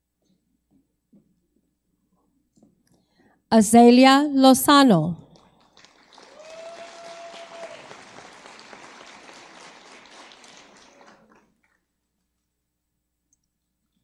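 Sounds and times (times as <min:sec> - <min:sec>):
audience applauding: 0:05.4 - 0:11.9.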